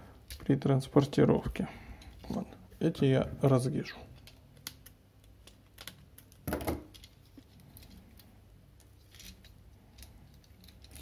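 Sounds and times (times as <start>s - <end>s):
handling plastic parts: 3.4s - 11.0s.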